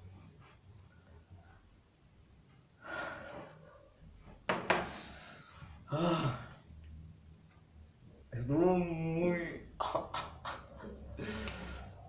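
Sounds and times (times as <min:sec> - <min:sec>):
faint room noise: 0:00.0 - 0:12.0
boy breathing out heavily: 0:11.2 - 0:12.0.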